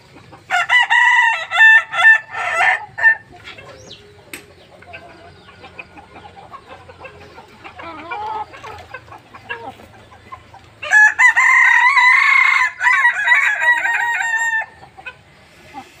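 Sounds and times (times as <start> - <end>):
roosters clucking and calling: 0.0 - 16.0.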